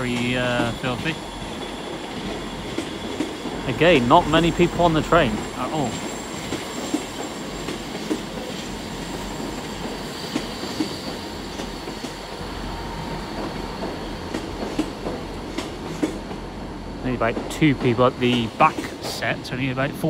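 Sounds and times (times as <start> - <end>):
train running rumble and hum: 0.0 - 20.0
faint high squeal: 9.1 - 14.3.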